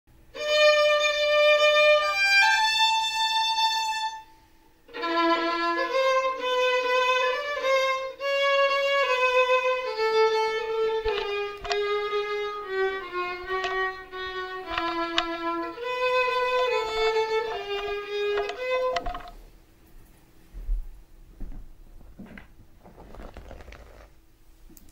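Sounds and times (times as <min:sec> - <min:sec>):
solo violin: 0:00.3 - 0:19.4.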